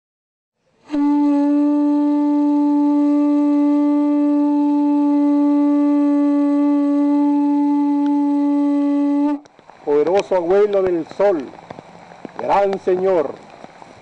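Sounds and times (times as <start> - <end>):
wind instrument long note: 0.8 - 9.5.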